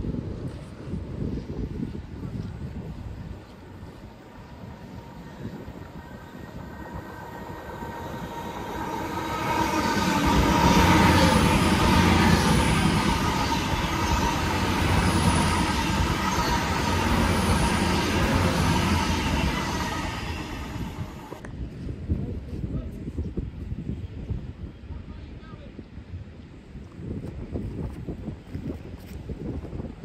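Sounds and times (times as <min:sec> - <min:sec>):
train wheels on rails: 0:01.7 - 0:21.5
diesel train passing: 0:03.1 - 0:21.5.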